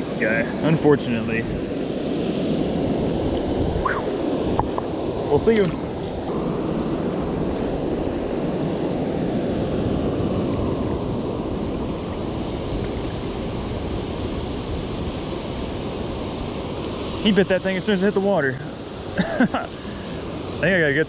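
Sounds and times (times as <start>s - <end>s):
wind on microphone: 1.3s - 19.1s
water rushing from spillway: 11.6s - 21.0s.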